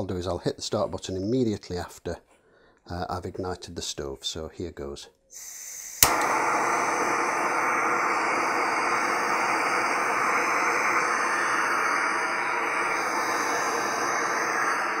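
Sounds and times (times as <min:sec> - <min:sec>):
gas burner hissing: 0:05.3 - 0:15.0.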